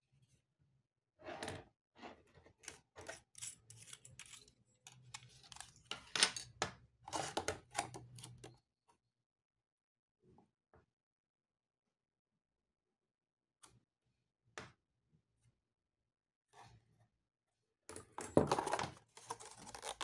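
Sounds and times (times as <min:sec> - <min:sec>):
clicks and scrapes of metal stethoscope: 0:02.6 - 0:05.8.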